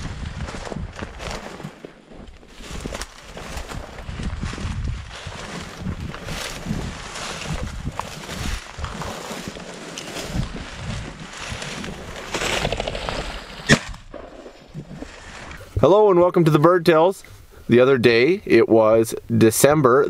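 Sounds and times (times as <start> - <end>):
dry stalks rustling and crunching: 0.0 - 16.5.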